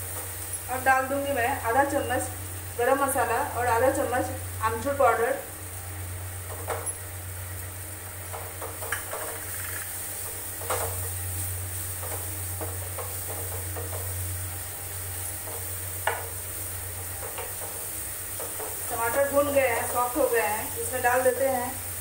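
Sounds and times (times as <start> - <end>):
masala sizzling in a frying pan: 0.0 - 22.0
steady low hum: 0.0 - 22.0
spoon knocking against pan: 15.4 - 16.3.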